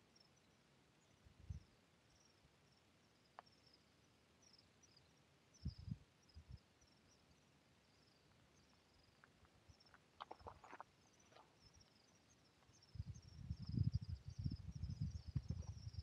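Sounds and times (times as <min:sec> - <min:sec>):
faint clicks: 0:03.3 - 0:03.6.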